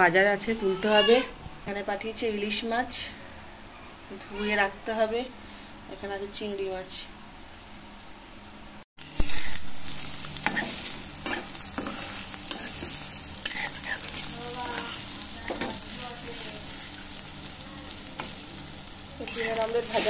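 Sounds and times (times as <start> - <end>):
omelette sizzling in a pan: 9.0 - 20.0
metal spatula scraping pan: 10.4 - 15.8, 19.2 - 20.0.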